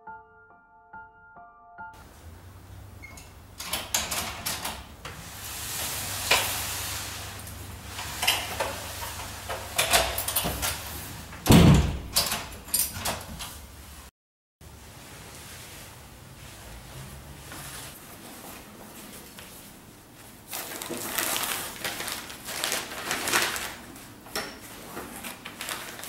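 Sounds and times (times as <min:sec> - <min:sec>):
door shutting with heavy thud: 0:08.0 - 0:13.4
door swinging open: 0:08.0 - 0:13.6.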